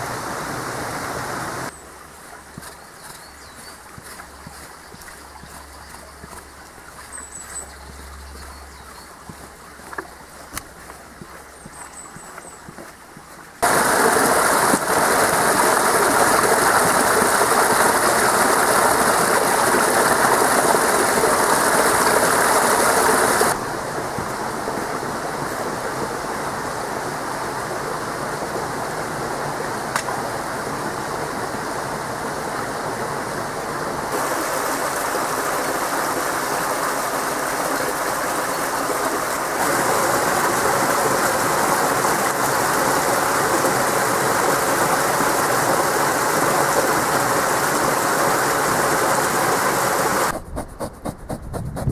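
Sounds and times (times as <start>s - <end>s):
stream rushing: 0.0s - 51.3s
waterfall splashing into pool: 13.6s - 50.3s.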